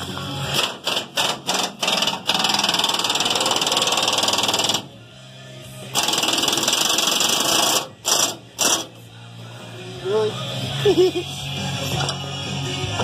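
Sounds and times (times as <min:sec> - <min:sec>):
pneumatic impact wrench hammering: 0:00.5 - 0:04.9, 0:05.9 - 0:09.0.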